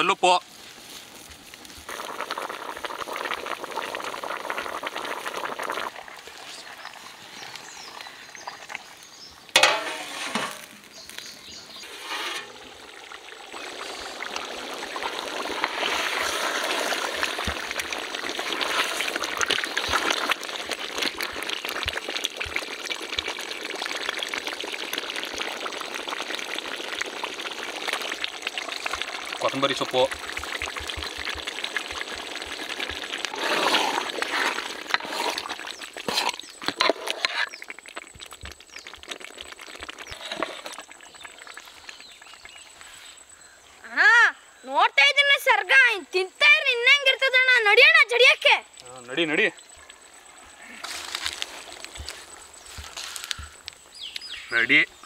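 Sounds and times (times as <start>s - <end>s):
curry bubbling and sizzling: 0.4s - 43.6s, 48.7s - 55.0s.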